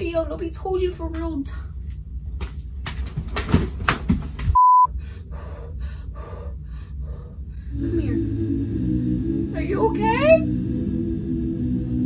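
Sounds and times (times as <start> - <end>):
censor bleep: 4.6 - 4.9.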